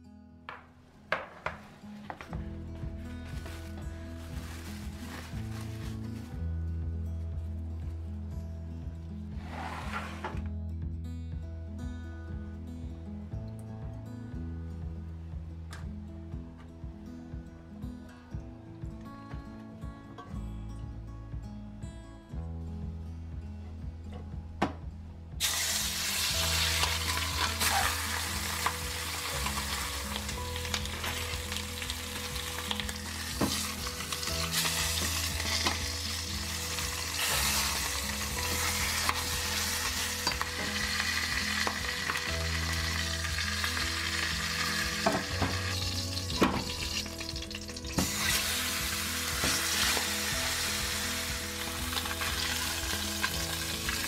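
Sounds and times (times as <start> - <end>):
meat sizzling in hot oil: 25.4 - 54.0.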